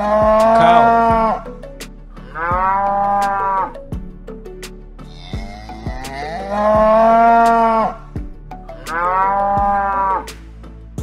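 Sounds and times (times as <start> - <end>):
cow mooing: 0.0 - 1.5, 5.6 - 7.9, 8.9 - 10.3
background music with beat: 0.0 - 11.0.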